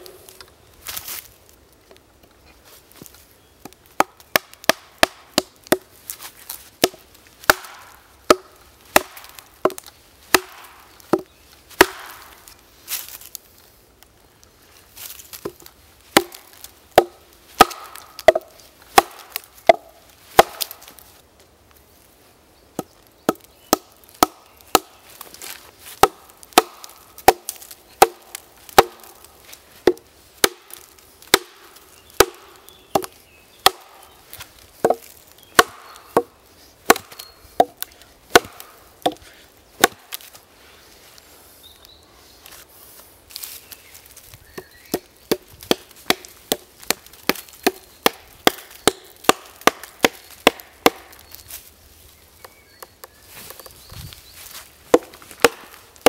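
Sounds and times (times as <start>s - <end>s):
wooden club knocking wedges: 17.0s - 20.7s, 34.8s - 36.3s.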